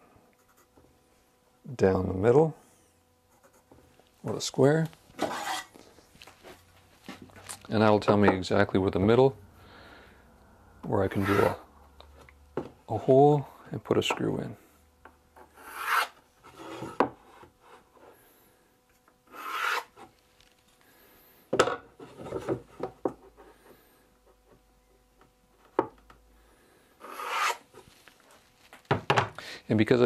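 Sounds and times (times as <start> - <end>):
pencil scratching on plywood: 0.4 - 0.8, 3.3 - 3.7, 11.1 - 11.6, 15.4 - 17.8, 19.3 - 20.0, 27.0 - 27.7.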